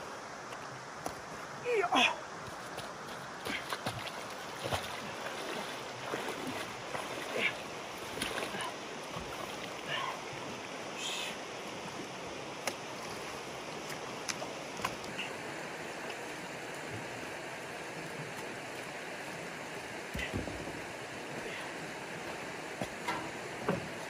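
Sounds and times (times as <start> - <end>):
stream water running: 0.0 - 24.0
splashing from wading: 2.8 - 10.2.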